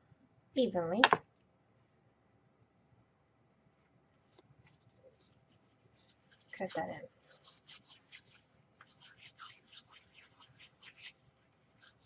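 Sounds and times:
ribbon rustling and scratching: 0:03.8 - 0:12.0.

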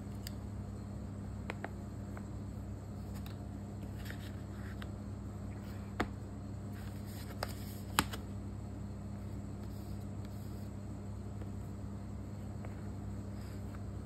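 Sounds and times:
steady low hum: 0:00.0 - 0:14.0
handling noise on a laptop: 0:03.0 - 0:08.4, 0:09.1 - 0:14.0.

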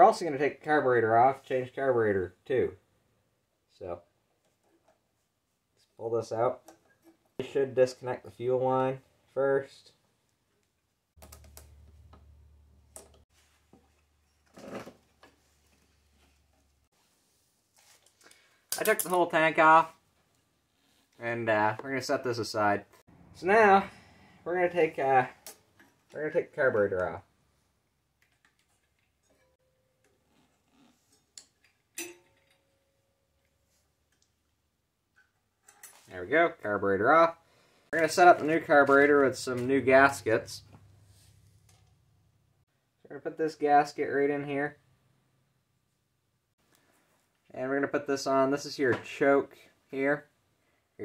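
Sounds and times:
metal clink: 0:31.1 - 0:33.3.

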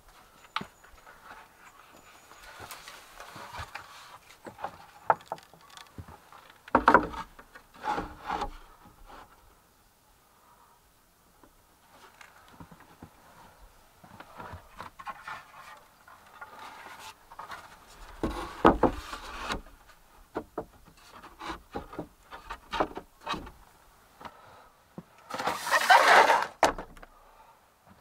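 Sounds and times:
boards scraping together: 0:06.7 - 0:09.3, 0:25.3 - 0:26.9
wooden boards knocking: 0:18.2 - 0:19.0.

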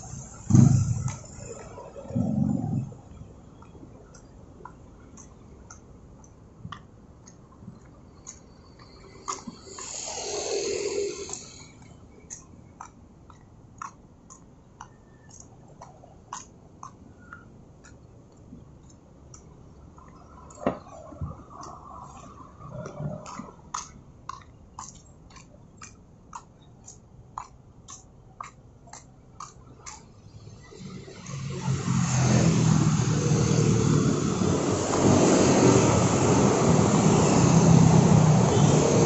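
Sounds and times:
vehicle passing: 0:00.0 - 0:03.2, 0:08.7 - 0:12.0, 0:29.6 - 0:39.0
faint traffic noise: 0:00.0 - 0:39.0
footsteps on concrete: 0:22.1 - 0:30.2.

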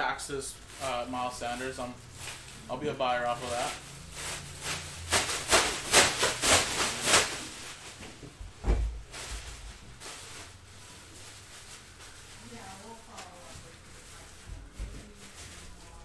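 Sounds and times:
packaging rustling and tearing: 0:00.5 - 0:08.2, 0:09.0 - 0:16.0
dull thump: 0:08.2 - 0:09.5.

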